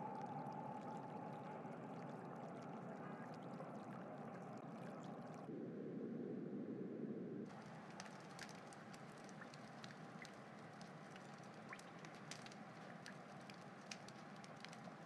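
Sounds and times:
light ticks: 7.5s - 15.0s.

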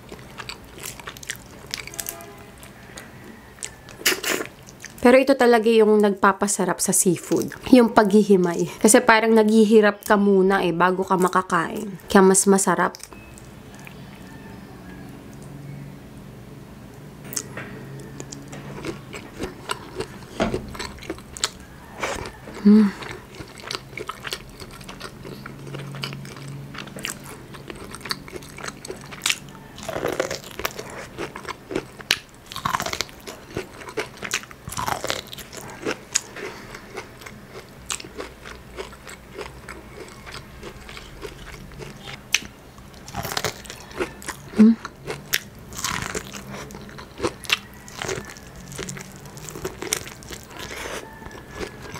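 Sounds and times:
chewing crunches: 0.0s - 5.0s, 17.3s - 51.9s.

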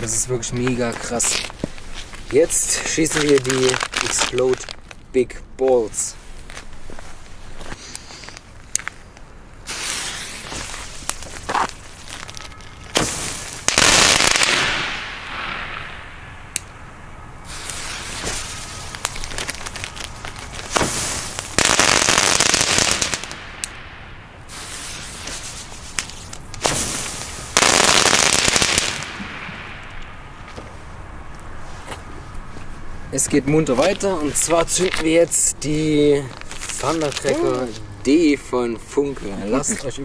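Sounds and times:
firework cracks: 0.0s - 5.0s, 9.6s - 30.8s
crackling firework bursts: 0.8s - 4.9s, 9.6s - 31.0s.

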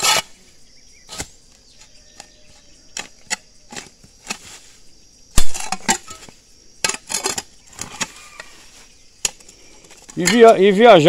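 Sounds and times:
hoe chopping into soil: 0.0s - 0.4s, 1.1s - 4.7s, 5.3s - 8.6s.

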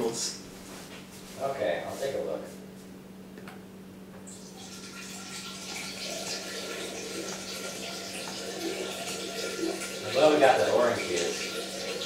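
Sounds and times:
water running: 4.3s - 12.0s.

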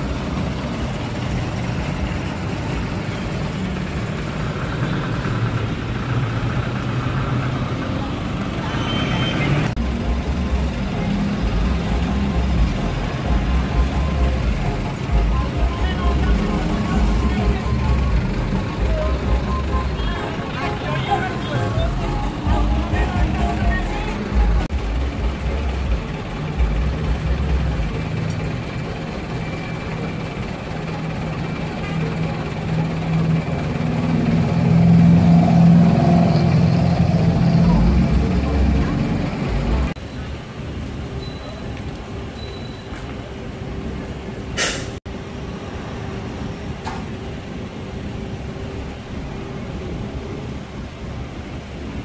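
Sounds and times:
diesel truck engine running: 0.0s - 41.2s
truck air-brake hiss: 44.6s - 45.0s.

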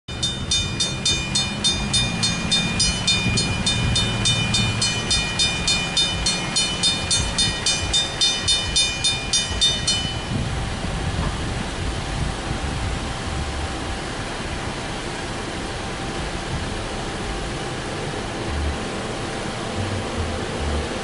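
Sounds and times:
crossing warning bell ringing: 0.1s - 11.5s.

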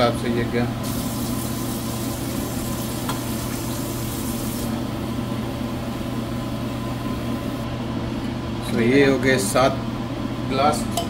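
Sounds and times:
sauce sizzling in frying pan: 0.8s - 4.7s.

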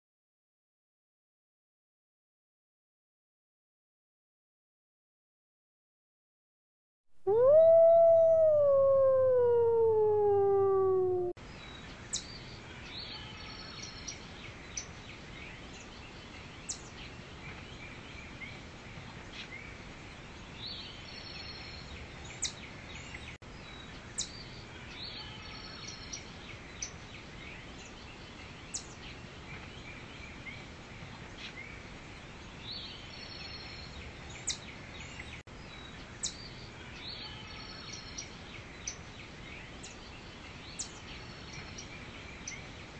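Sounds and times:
wolf howling: 7.2s - 11.4s.

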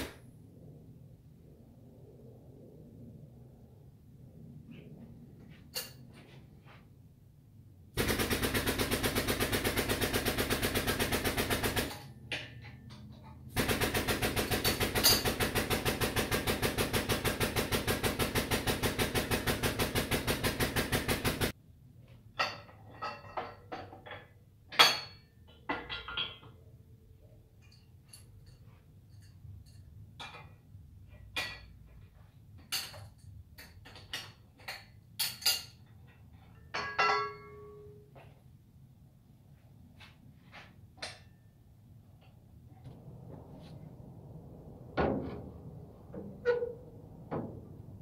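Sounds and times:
metal clanks and knocks: 22.3s - 26.7s, 27.6s - 38.0s.

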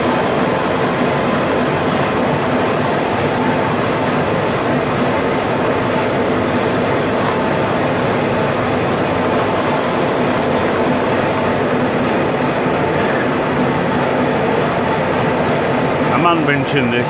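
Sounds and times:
milling machine cutting metal: 0.0s - 12.6s.

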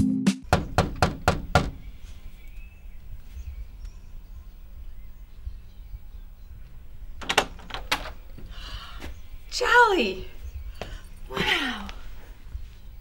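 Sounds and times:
fist knocking on wooden door: 0.5s - 1.8s.

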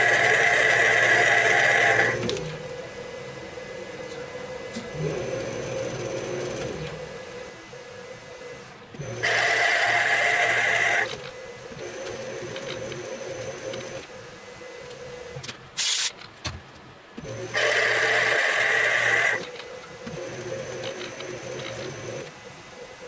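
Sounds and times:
harsh metal cutting noise: 0.0s - 2.5s, 9.0s - 14.0s, 17.2s - 22.3s
metal lathe humming: 0.0s - 7.7s, 8.4s - 15.0s, 17.2s - 22.3s.

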